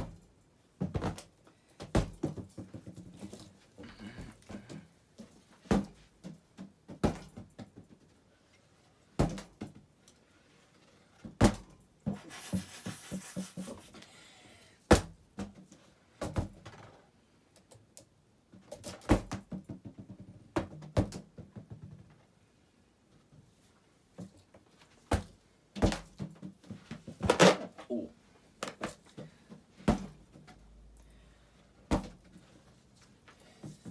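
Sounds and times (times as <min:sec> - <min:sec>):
balloon thumping fan blades: 0:11.2 - 0:14.0
short rushing hiss: 0:12.2 - 0:14.0.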